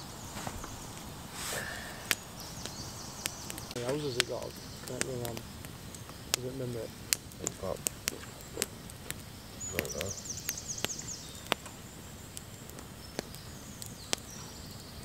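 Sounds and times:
campfire crackling and popping: 0.0s - 15.0s
small bird twittering: 0.2s - 15.0s.

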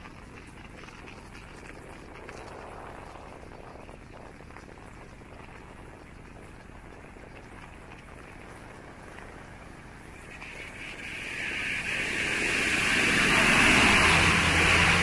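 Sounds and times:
tyre hiss on wet road: 10.3s - 15.0s
bus engine hum: 10.5s - 15.0s.

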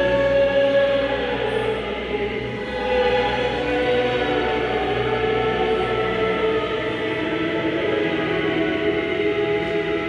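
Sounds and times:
choir singing held notes: 0.0s - 10.0s.

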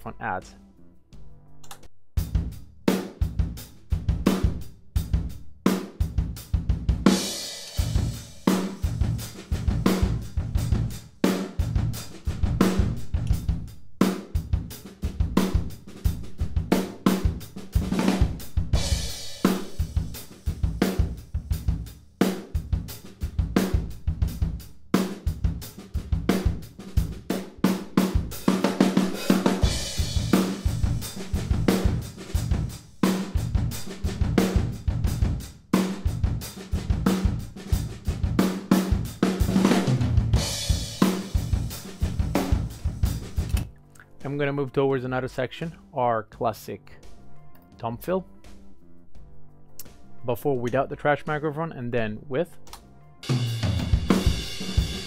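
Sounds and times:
snare drum: 5.7s - 43.6s, 53.3s - 55.0s.

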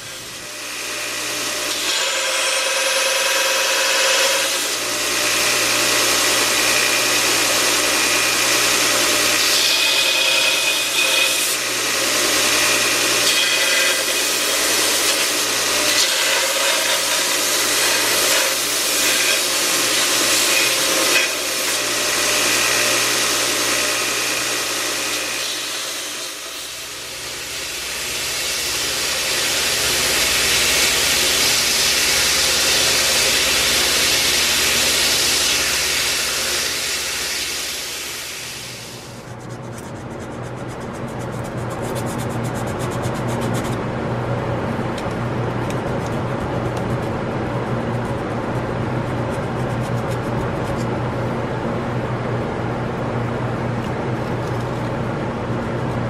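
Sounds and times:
belt grinder motor hum: 0.0s - 39.2s
belt rasping on wood: 39.3s - 43.8s.

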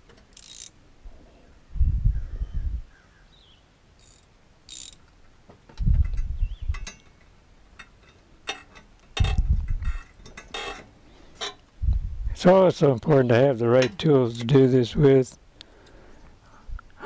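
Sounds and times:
socket ratchet clicking: 0.3s - 0.8s, 4.0s - 5.1s.

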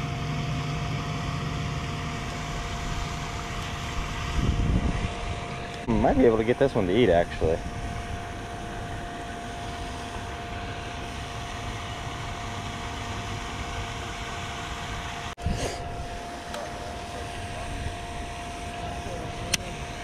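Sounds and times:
wind on microphone: 3.9s - 6.2s, 7.3s - 9.2s.

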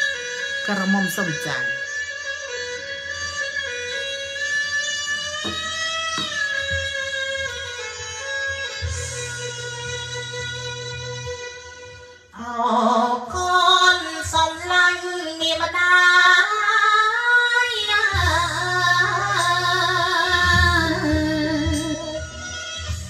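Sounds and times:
instrumental backing track: 0.0s - 23.0s
bass line: 18.2s - 23.0s.

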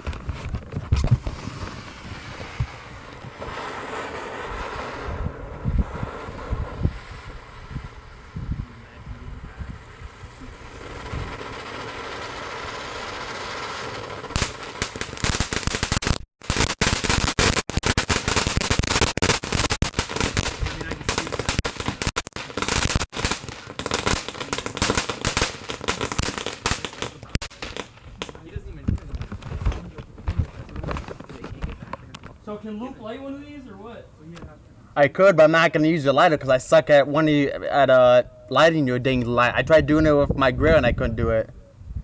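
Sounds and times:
fireworks hissing: 0.0s - 31.1s
fireworks crackling pops: 0.0s - 32.8s.

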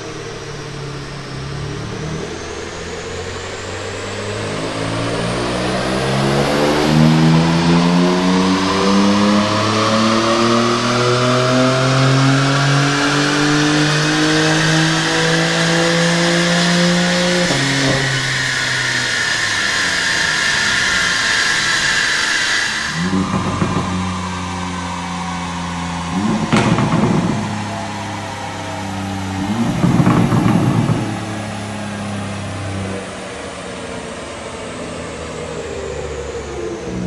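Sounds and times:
car engine revving at full throttle: 0.0s - 37.0s.

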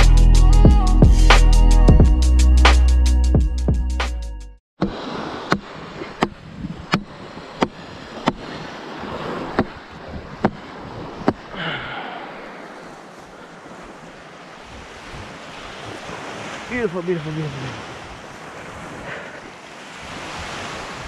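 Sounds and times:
surf washing on beach: 4.8s - 21.0s
wind on microphone: 4.9s - 11.6s, 14.6s - 16.5s.

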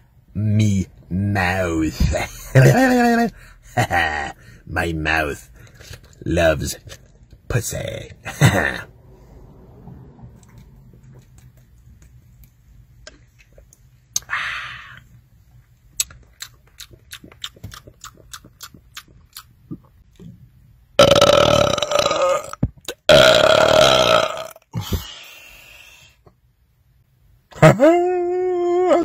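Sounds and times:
man belching: 2.0s - 4.5s, 8.3s - 8.9s, 21.0s - 24.9s
breathy sound: 3.3s - 3.8s, 14.2s - 15.1s, 24.7s - 26.2s.

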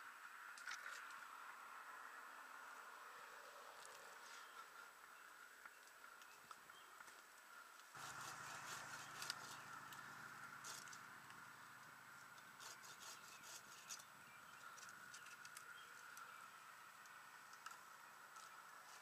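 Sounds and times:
faint steady hum: 0.0s - 19.0s
twigs clicking and rustling: 5.6s - 11.4s, 12.3s - 16.4s, 17.0s - 19.0s.

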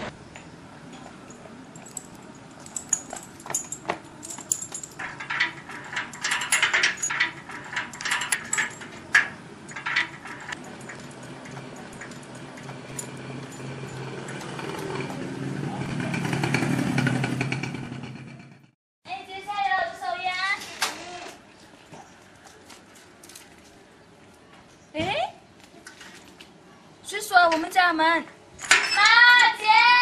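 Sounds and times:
chain and padlock rattling on gate: 1.2s - 15.1s, 28.6s - 29.6s.

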